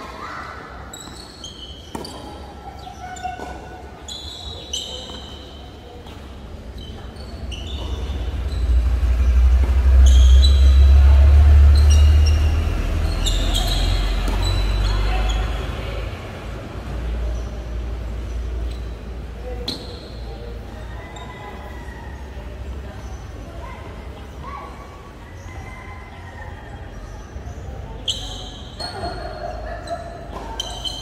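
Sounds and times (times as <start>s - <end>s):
sneakers squeaking on floor: 0.0s - 22.0s, 27.0s - 31.0s
rackets hitting ball: 1.0s - 3.8s
low rumble: 7.9s - 13.0s.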